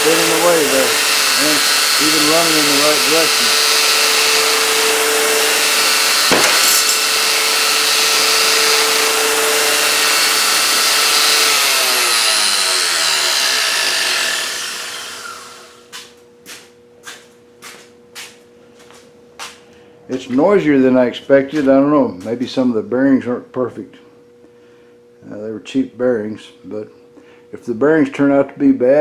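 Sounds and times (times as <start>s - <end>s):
belt grinder motor running: 0.0s - 16.0s.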